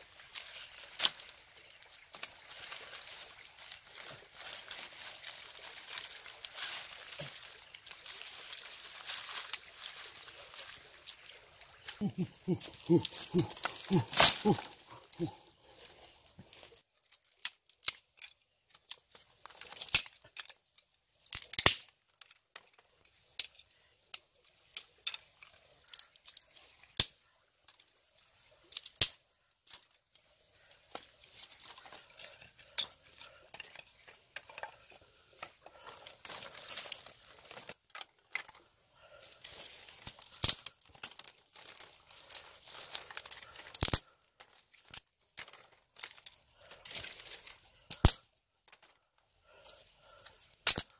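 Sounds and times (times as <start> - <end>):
dry leaves crinkling: 0.0 - 18.0, 29.7 - 48.3
dry sticks snapping: 0.2 - 15.9, 16.5 - 20.6, 21.2 - 22.7, 27.0 - 27.2, 28.7 - 29.9, 39.4 - 48.3, 50.2 - 50.9.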